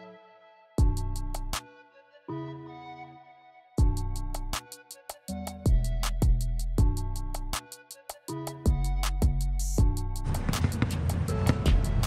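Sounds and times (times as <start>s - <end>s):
music with quick ticking beat: 3.8s - 12.0s.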